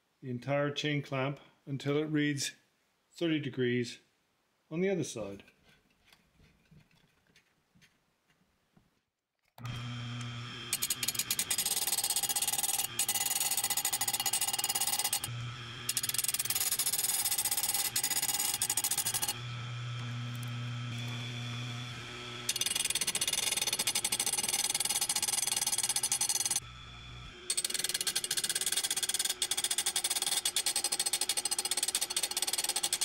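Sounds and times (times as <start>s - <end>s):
grinding wheel on saw chain: 9.6s - 26.7s, 27.4s - 33.0s
grinder motor humming: 9.6s - 32.9s.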